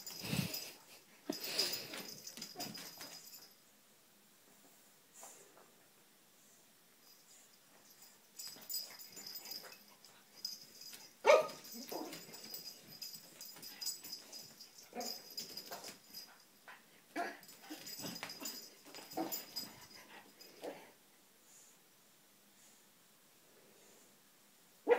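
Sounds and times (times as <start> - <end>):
puppy barking and whining: 11.2 - 12.2.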